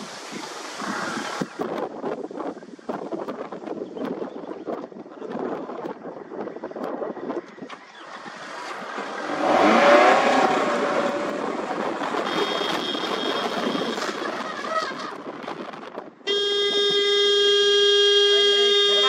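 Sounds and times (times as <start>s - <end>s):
road and wind noise: 0.0s - 19.0s
vehicle engine revving: 7.8s - 13.9s.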